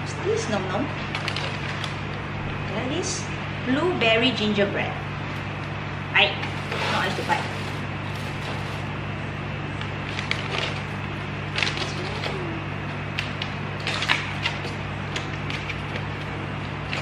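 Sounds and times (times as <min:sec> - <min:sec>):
plastic bags and paper crinkling: 0:01.1 - 0:02.0, 0:06.5 - 0:08.9, 0:10.0 - 0:12.4.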